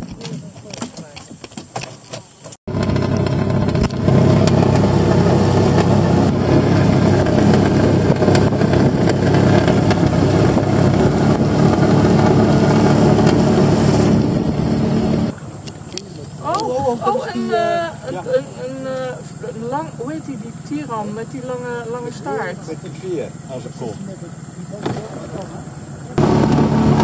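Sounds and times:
water rushing past hull: 2.7 - 15.7
outboard motor droning: 2.7 - 27.0.

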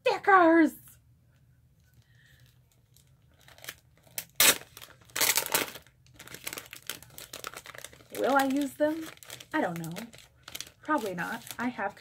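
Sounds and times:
sticker sheets crinkling: 2.7 - 12.0.

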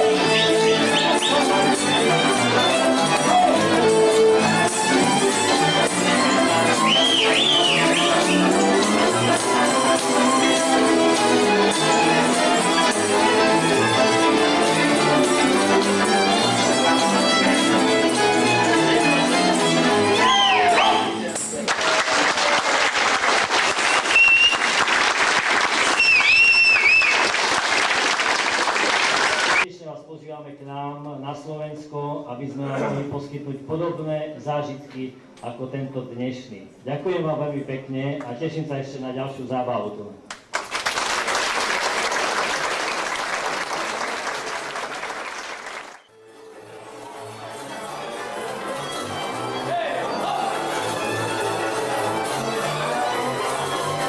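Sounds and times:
audience applauding: 6.9 - 8.5, 21.6 - 29.6, 40.3 - 46.1.

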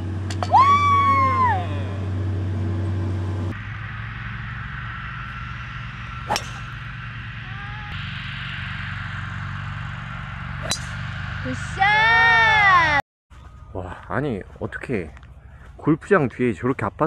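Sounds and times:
steady low hum: 0.0 - 16.5
outdoor background noise: 0.0 - 17.0
golf club striking ball: 6.2 - 6.9, 10.6 - 11.2.

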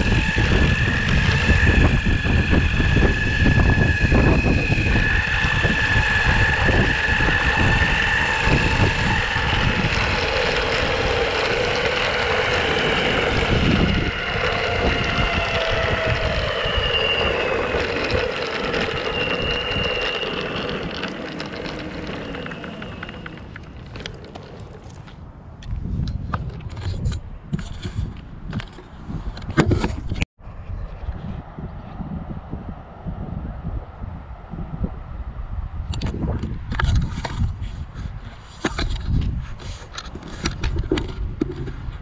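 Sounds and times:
electric motor whine: 0.0 - 25.1
wheel rumble on pavement: 0.0 - 25.3
wind on microphone: 0.0 - 42.0.

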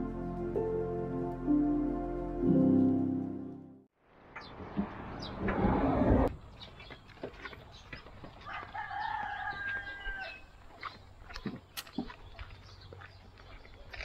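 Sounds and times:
footsteps on concrete: 6.6 - 14.0
rooster crowing: 8.4 - 10.6.

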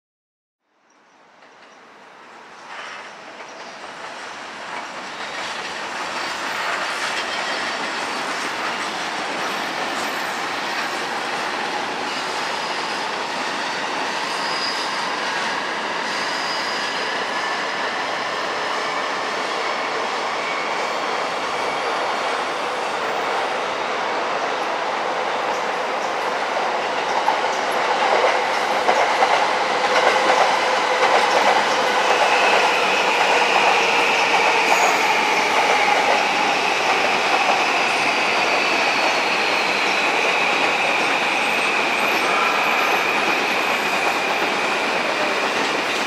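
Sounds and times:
electric train running: 26.5 - 46.0.

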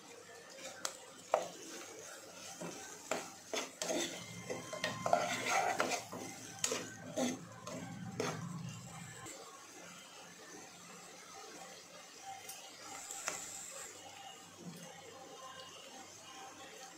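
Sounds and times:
spatula scraping pot: 0.5 - 8.9.

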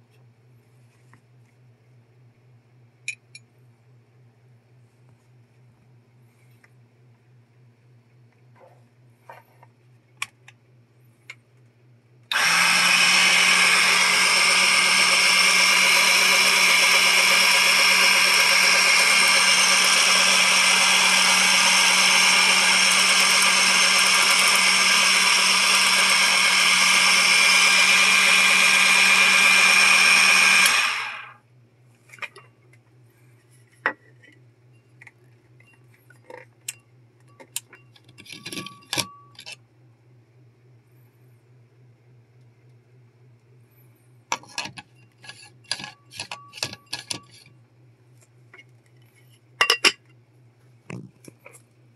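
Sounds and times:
coffee grinder motor whirring: 12.3 - 31.4
glass jars clicking and knocking: 49.6 - 50.0.

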